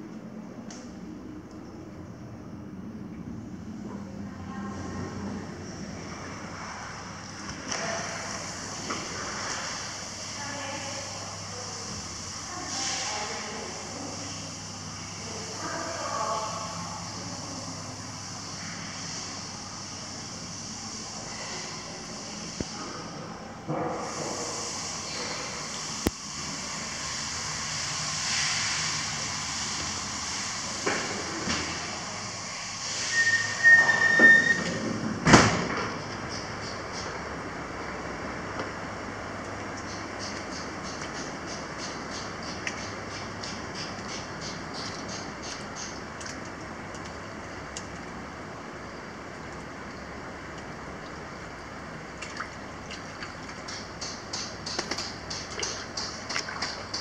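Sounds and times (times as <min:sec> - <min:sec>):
door squeal: 0:33.0 - 0:34.8
water running into bath: 0:49.2 - 0:57.0.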